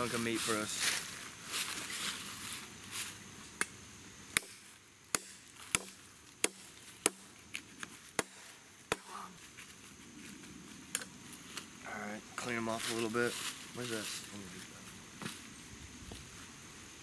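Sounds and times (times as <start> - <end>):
blade chopping meat on a log: 4.3 - 7.2, 8.2 - 9.1.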